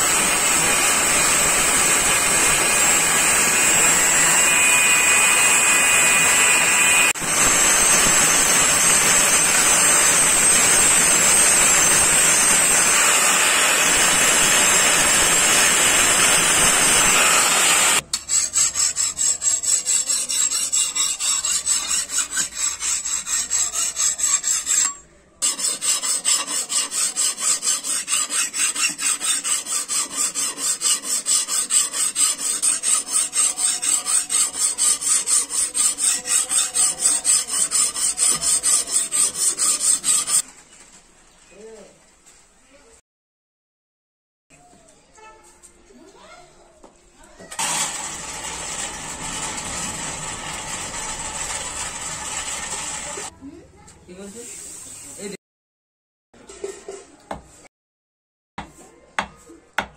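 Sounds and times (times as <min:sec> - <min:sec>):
angle grinder grinding steel: 0:00.0 - 0:40.4, 0:47.5 - 0:53.3
hand file rasping on blade: 0:00.0 - 0:40.4, 0:47.6 - 0:53.3.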